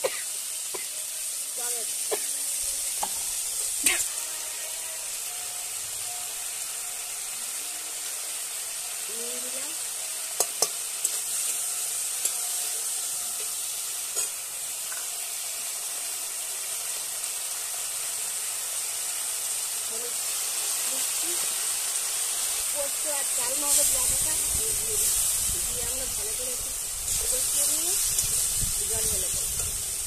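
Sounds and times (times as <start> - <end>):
vegetables sizzling in hot oil: 0.0 - 30.0
metal spatula clicking on pan: 10.4 - 11.6.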